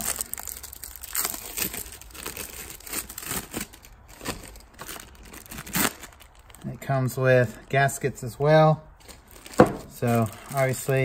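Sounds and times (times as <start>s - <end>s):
plastic bag crinkling: 0.0s - 7.6s, 9.0s - 11.0s.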